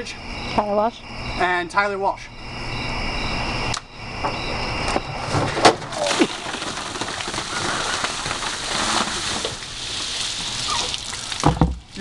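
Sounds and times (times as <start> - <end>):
water pouring and splashing: 5.8 - 12.0.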